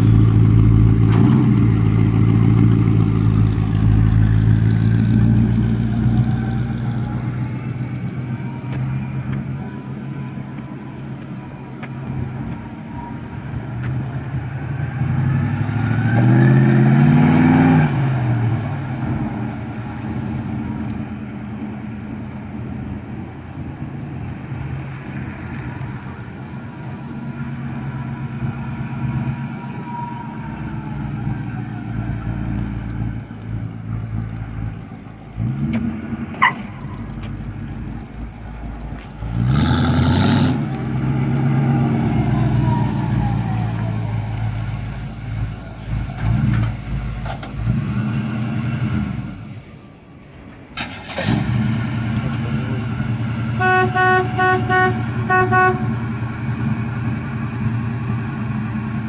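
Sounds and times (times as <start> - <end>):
pickup truck engine revving: 33.9 - 49.6, 50.8 - 53.7.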